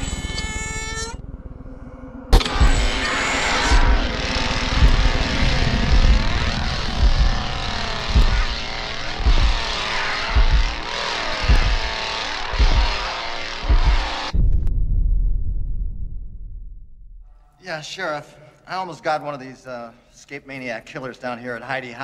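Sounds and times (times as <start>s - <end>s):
engine-like drone: 0.4s - 14.4s
heavy low thud: 2.3s - 3.0s, 3.6s - 17.2s.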